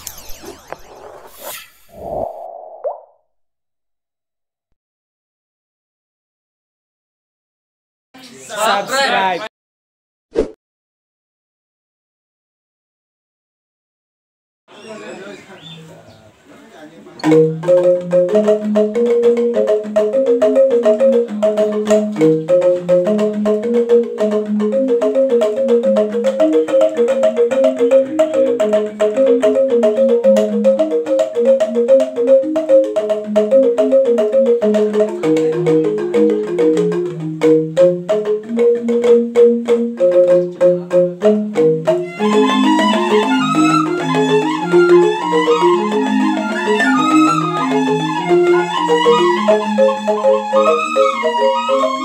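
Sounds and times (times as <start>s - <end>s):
bamboo xylophone melody: 17.2s - 52.0s
bamboo flutes: 41.9s - 52.0s.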